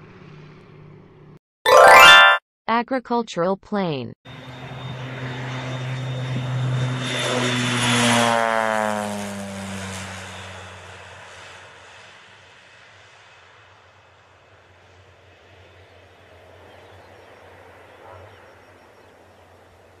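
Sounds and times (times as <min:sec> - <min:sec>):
propeller plane flying low past: 0:00.0 - 0:01.4, 0:04.3 - 0:20.0.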